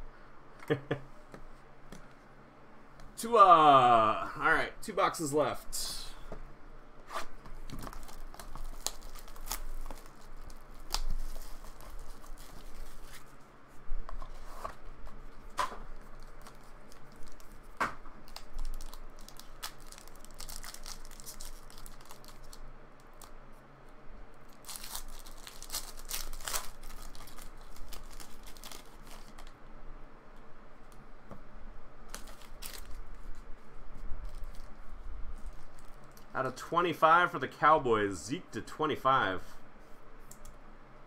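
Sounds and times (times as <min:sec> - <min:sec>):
foil wrapper tearing and crinkling: 0:07.7 - 0:13.2, 0:16.0 - 0:23.3, 0:24.5 - 0:29.6, 0:32.1 - 0:33.4.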